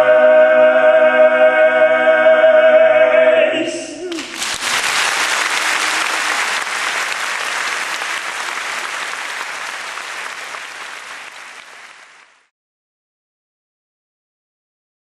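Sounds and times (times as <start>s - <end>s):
audience applauding: 4.1s - 12.5s.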